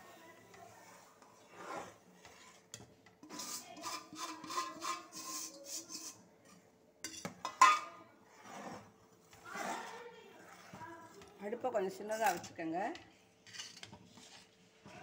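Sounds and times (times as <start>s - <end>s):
ladle scraping steel pot: 0.5s - 11.3s, 13.4s - 14.6s
ladle clanking on pot: 7.0s - 8.0s.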